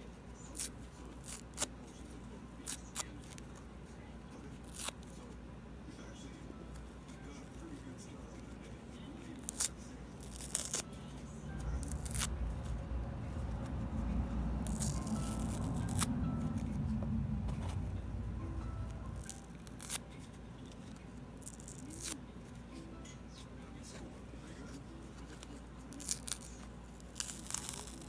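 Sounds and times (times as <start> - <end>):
foam sponge tearing: 9.3 - 10.9, 11.6 - 12.8, 14.6 - 16.7, 19.1 - 20.0, 21.4 - 22.2, 25.3 - 28.0.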